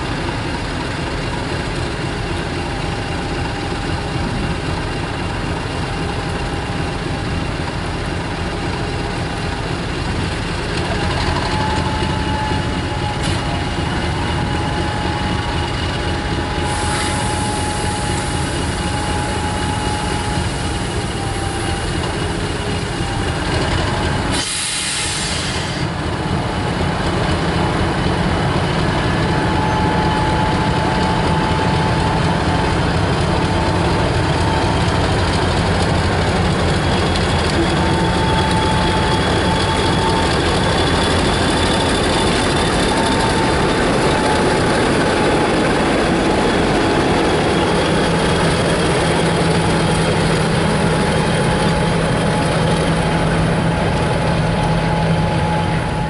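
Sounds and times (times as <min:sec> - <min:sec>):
diesel locomotive engine idling: 0:00.0 - 0:56.0
air hiss: 0:24.3 - 0:25.9.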